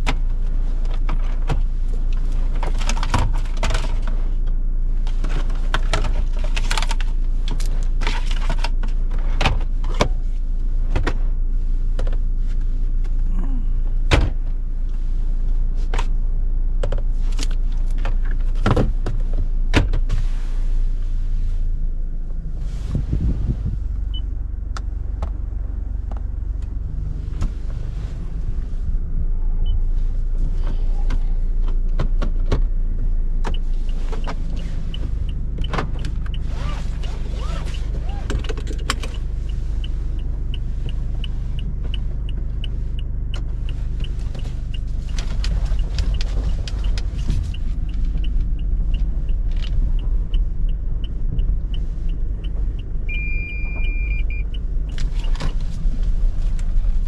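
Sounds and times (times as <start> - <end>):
diesel engine and tyre drone: 0.0 - 57.0
regular light ticking: 38.7 - 55.4.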